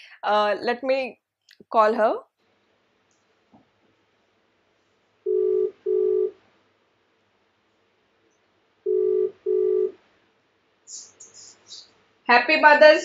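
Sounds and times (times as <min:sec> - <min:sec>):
ringback tone beeps: 0:05.3 - 0:06.3, 0:08.9 - 0:10.0.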